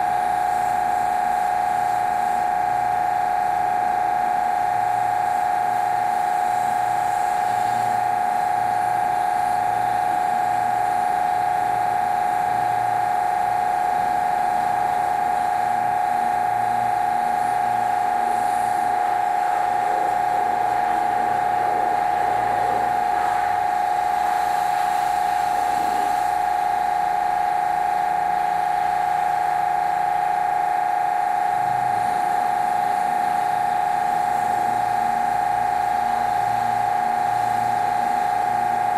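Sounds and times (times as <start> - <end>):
pressure washer whining: 0.0 - 38.9.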